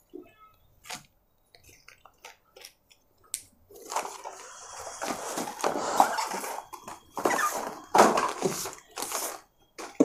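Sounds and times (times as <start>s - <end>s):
cardboard packaging rustling: 3.7s - 10.0s.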